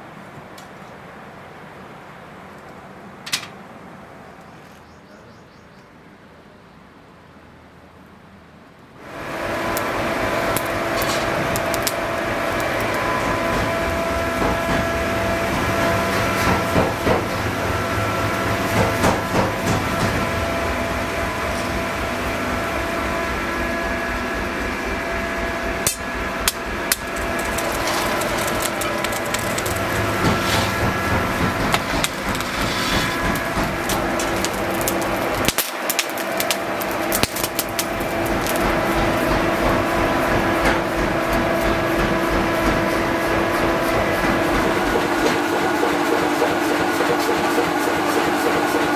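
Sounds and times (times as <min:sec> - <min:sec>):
steady machine hum: 0:09.0 - 0:48.9
hammer strikes: 0:18.6 - 0:20.3, 0:25.8 - 0:35.6.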